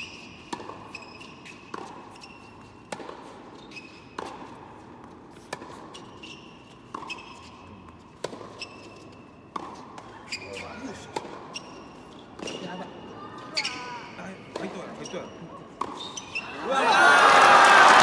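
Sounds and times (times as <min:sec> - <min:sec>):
tennis ball hit and bouncing: 0:00.0 - 0:07.5, 0:08.1 - 0:10.1, 0:11.0 - 0:12.6, 0:15.8 - 0:16.4
shoes squeaking on court: 0:00.0 - 0:16.6.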